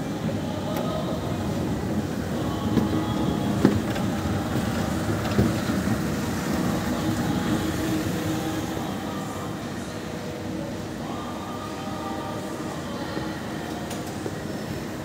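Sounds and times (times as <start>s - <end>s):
busy shopping mall din: 0.0s - 15.0s.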